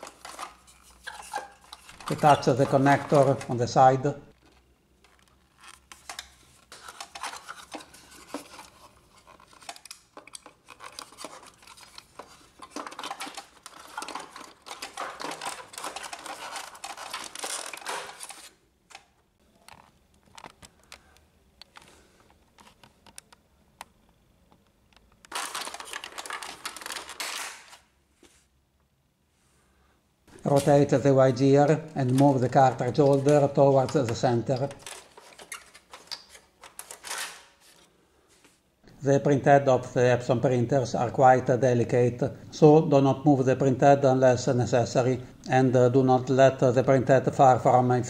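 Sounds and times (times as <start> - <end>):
plastic parts scraping and rubbing: 0.0 - 23.2, 25.2 - 28.5, 30.3 - 38.6.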